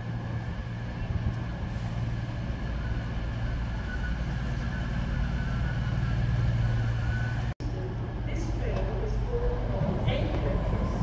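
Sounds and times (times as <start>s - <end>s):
diesel train engine drone: 0.0s - 11.0s
faint high squeal: 2.8s - 7.5s.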